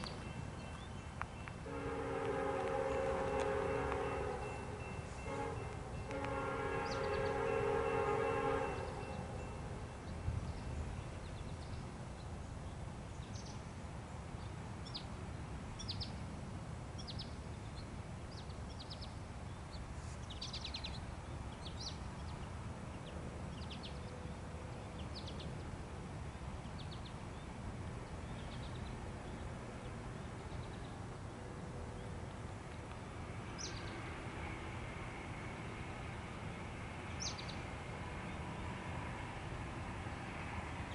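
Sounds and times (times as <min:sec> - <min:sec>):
locomotive air horn: 0:01.6 - 0:09.8
bird chirping: 0:04.0 - 0:07.6, 0:33.5 - 0:34.2, 0:37.1 - 0:38.4.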